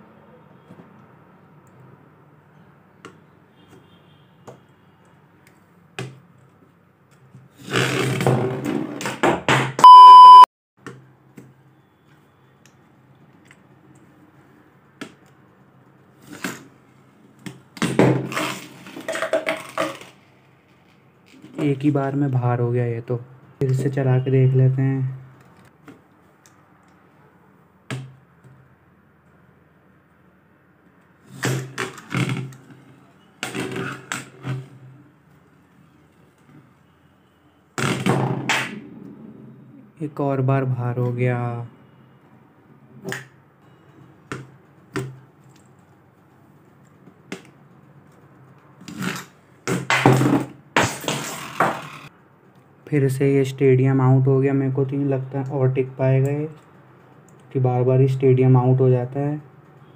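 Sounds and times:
loud electronic beep: 9.8s - 10.5s
spinning tops whirring and clashing: 50.8s - 52.1s.

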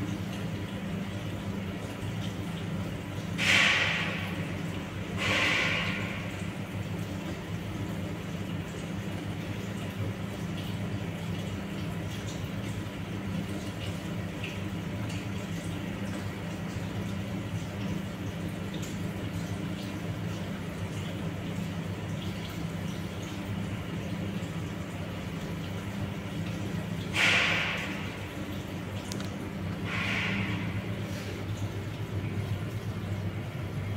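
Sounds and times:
water simmering ticks and hiss: 0.1s - 33.5s.

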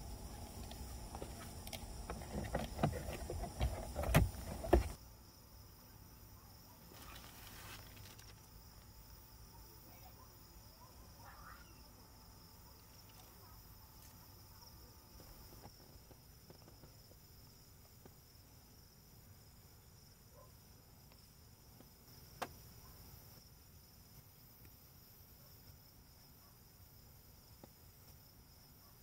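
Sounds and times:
panel clunking against car window: 2.0s - 5.0s.

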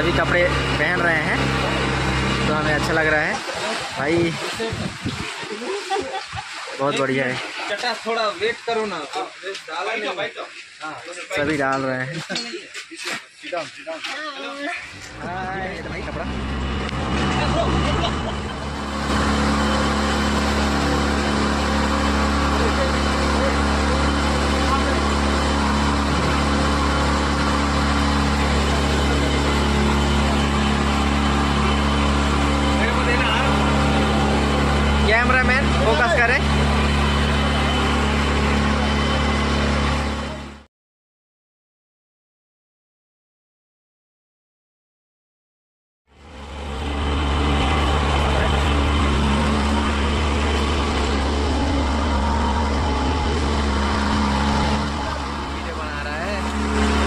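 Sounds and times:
motorboat engine humming: 0.0s - 9.4s, 14.7s - 40.6s, 46.1s - 57.0s
water rushing: 0.0s - 12.6s, 13.2s - 40.4s, 46.2s - 57.0s.

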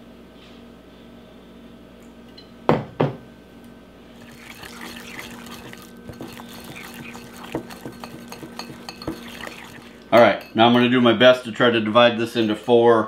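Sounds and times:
milk pouring into glass bowl: 4.2s - 10.5s
whisk clinking against glass bowl: 4.2s - 10.8s.

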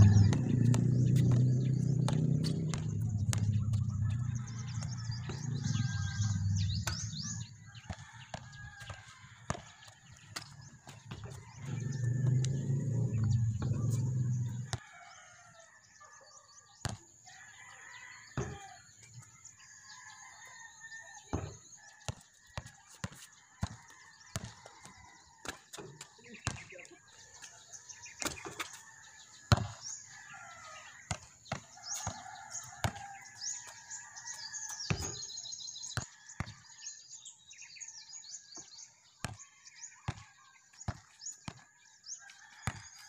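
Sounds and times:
low rumble: 0.0s - 7.4s, 11.7s - 14.7s
basketball bouncing on concrete: 0.0s - 15.2s, 16.8s - 19.4s, 20.3s - 27.4s, 28.0s - 36.7s, 39.2s - 43.0s
birds chirping: 0.0s - 43.0s.

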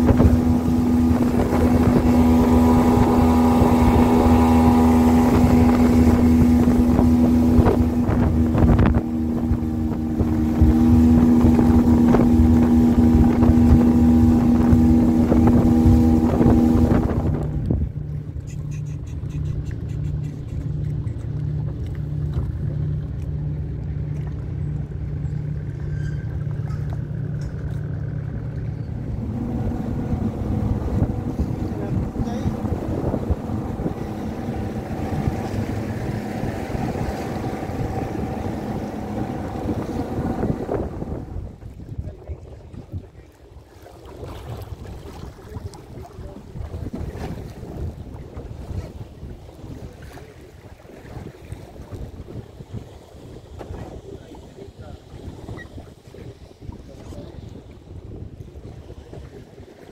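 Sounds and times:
outboard motor running: 0.0s - 59.9s
water rushing past hull: 0.0s - 59.9s
wind rushing: 29.0s - 41.6s.

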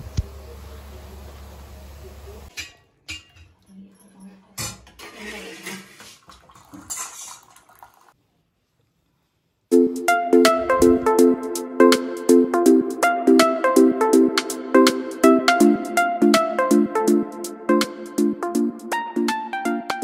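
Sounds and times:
pots and utensils clinking: 2.5s - 7.9s
music: 9.7s - 20.0s.

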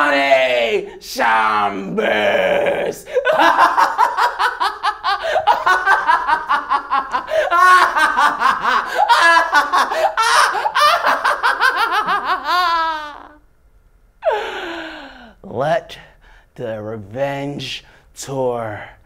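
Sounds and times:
man laughing loudly: 3.0s - 13.4s.

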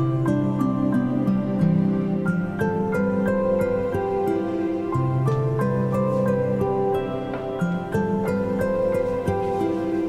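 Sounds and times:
soft instrumental music: 0.0s - 10.0s.

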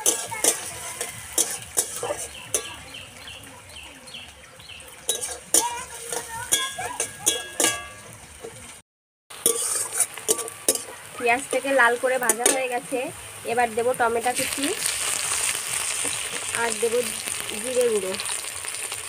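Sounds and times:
metal spatula scraping a pan: 0.0s - 2.8s, 5.0s - 8.7s, 9.4s - 12.8s
onions sizzling in oil: 0.0s - 19.0s.

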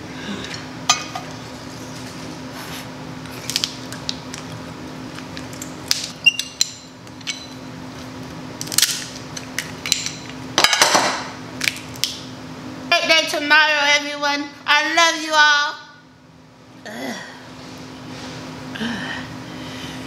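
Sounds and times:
steady low hum: 0.0s - 20.0s
crab shells cracking: 3.4s - 6.2s, 8.6s - 9.9s.

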